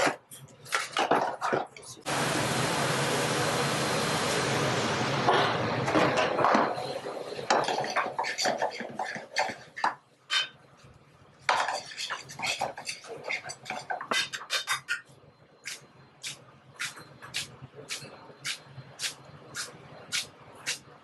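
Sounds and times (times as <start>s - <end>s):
metal tongs scraping a pan: 7.6s - 10.6s, 11.6s - 15.1s.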